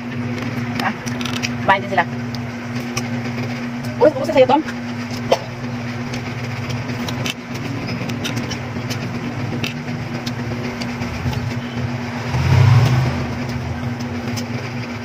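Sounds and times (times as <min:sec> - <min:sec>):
engine idling: 0:00.0 - 0:15.0
crisp fruit being bitten and chewed: 0:05.1 - 0:11.6.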